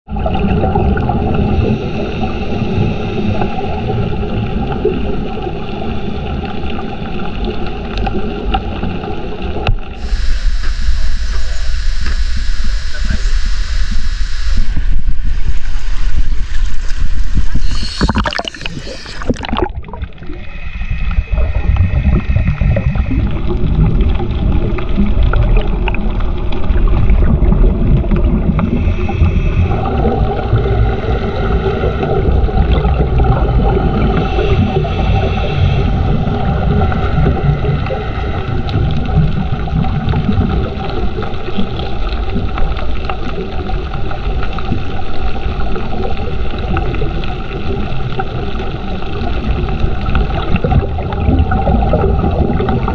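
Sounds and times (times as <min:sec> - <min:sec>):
muffled underwater rumble: 0:00.1 - 0:52.9
faint humming tones: 0:09.7 - 0:40.5
splash and hiss: 0:09.9 - 0:24.2.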